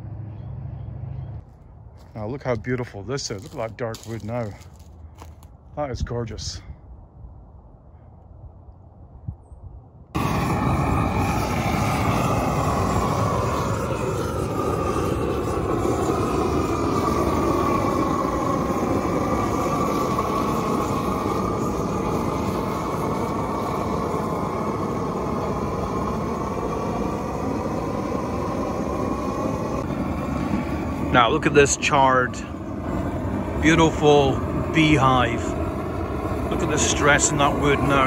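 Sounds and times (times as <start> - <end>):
gas torch flame rushing: 10.2 - 38.0.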